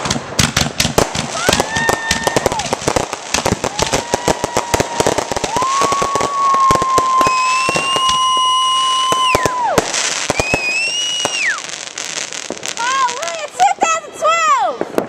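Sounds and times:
firework shells bursting: 0.0s - 13.6s
crackling pops: 0.0s - 13.7s
high-pitched whistling tones: 7.2s - 9.6s, 10.3s - 11.7s.

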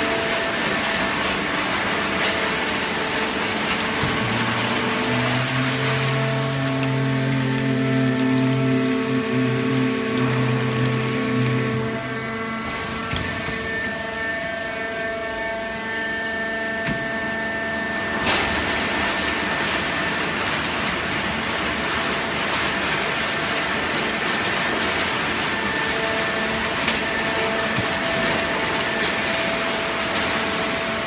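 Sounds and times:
baler machine humming: 0.0s - 16.6s.

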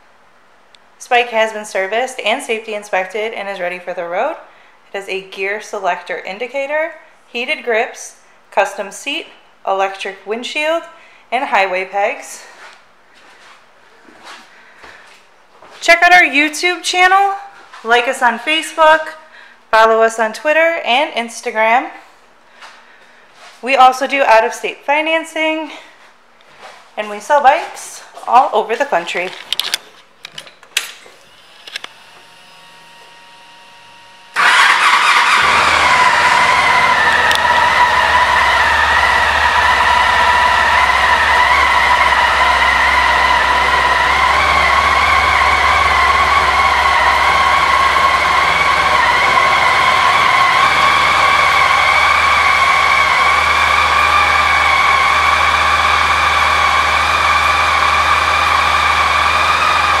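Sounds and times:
motorcycle engine starting and idling: 31.3s - 60.0s.

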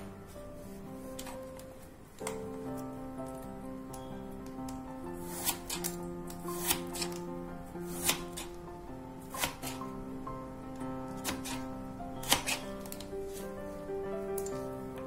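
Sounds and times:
background music: 0.0s - 15.0s
knife slicing on cutting board: 5.2s - 7.2s, 7.8s - 8.5s, 9.3s - 9.8s, 11.2s - 13.5s.

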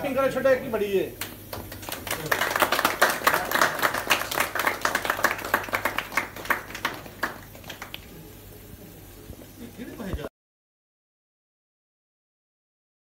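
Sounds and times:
people clapping: 1.2s - 8.2s.

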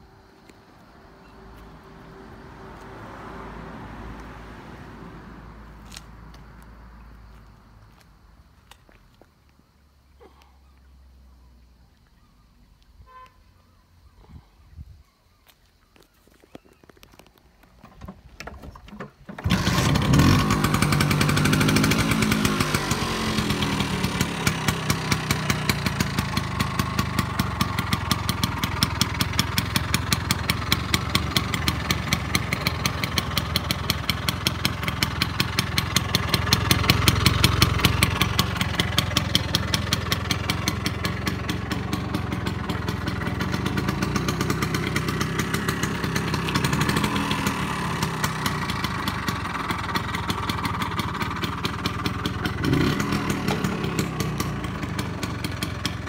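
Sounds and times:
scooter engine starting and revving: 17.8s - 56.0s.

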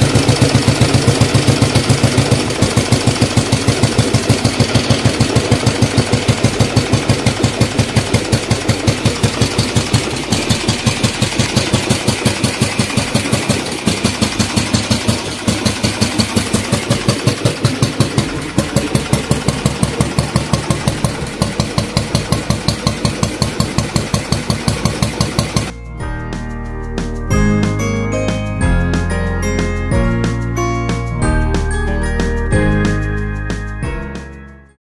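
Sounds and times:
motorcycle engine idling: 0.0s - 25.8s.

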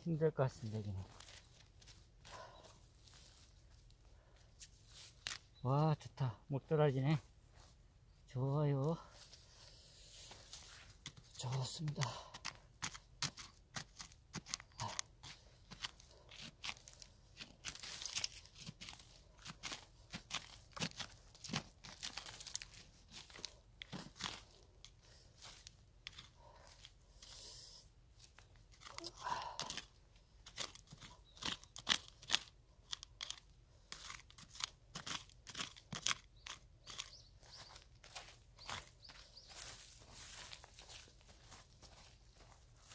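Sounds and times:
hand tool digging stony soil: 4.6s - 5.6s, 8.8s - 41.8s.

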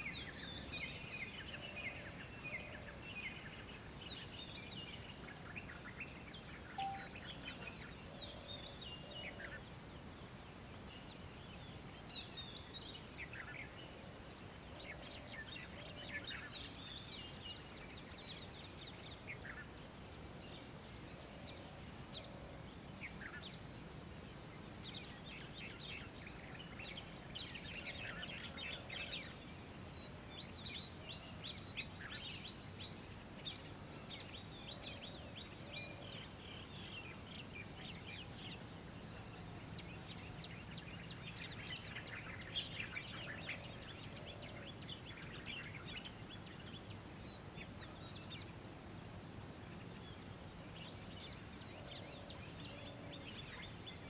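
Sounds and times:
small birds chirping and trilling: 0.0s - 54.0s.

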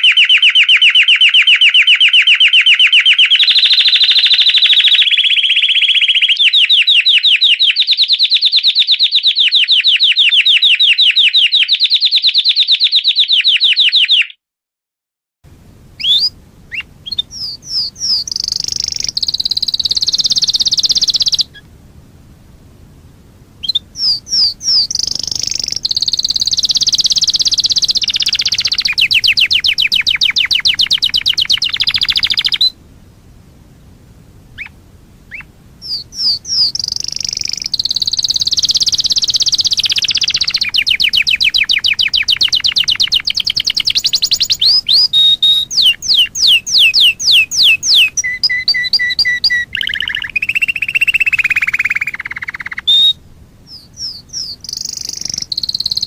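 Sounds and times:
canary singing trilled rolls: 0.0s - 12.6s, 15.6s - 56.0s
faint hiss: 15.4s - 56.0s.

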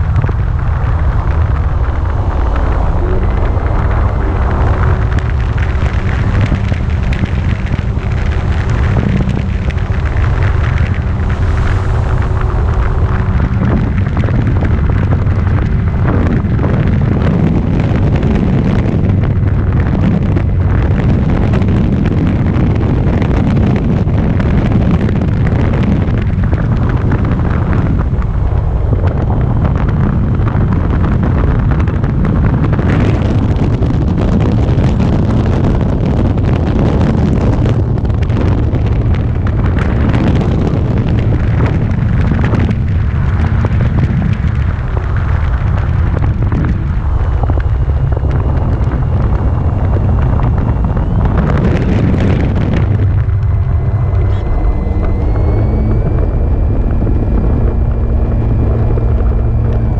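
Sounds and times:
faint motor drone: 0.0s - 59.9s
wind buffeting microphone: 0.0s - 59.9s.

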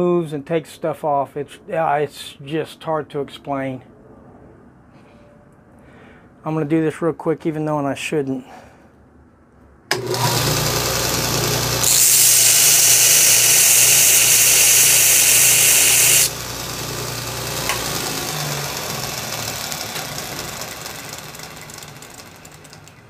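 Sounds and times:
belt grinder motor hum: 9.9s - 23.0s
metal grinding hiss: 11.8s - 16.4s.

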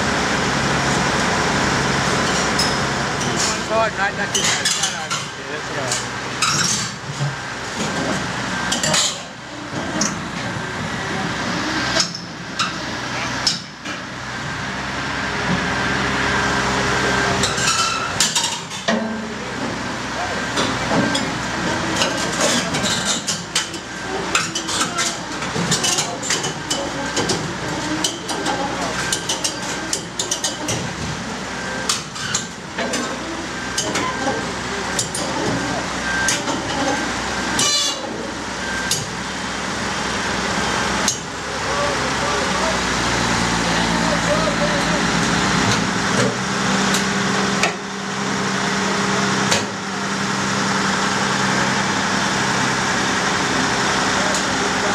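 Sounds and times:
excavator diesel engine running: 0.0s - 54.9s
metal clanks from tracks: 2.2s - 10.6s, 11.9s - 14.1s, 17.3s - 39.2s.

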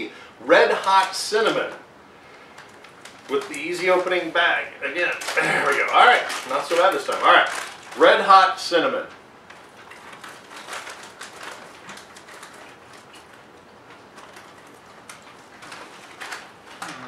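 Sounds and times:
plastic bag crinkling: 2.5s - 4.2s, 5.0s - 17.0s
crunchy chewing: 9.5s - 17.0s.

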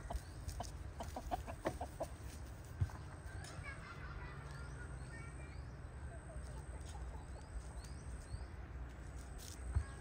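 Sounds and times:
chickens clucking: 0.0s - 5.0s, 6.1s - 8.3s.

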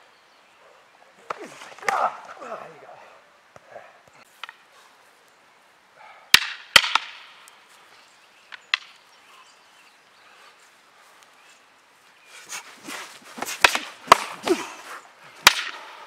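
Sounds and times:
wooden sticks striking: 1.2s - 2.6s, 6.3s - 7.6s, 8.5s - 9.0s, 12.5s - 14.7s, 15.4s - 16.0s.

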